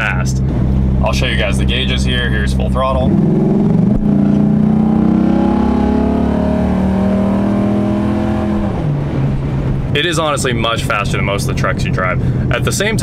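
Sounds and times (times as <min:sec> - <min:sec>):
engine revving at full throttle: 0:01.2 - 0:08.9.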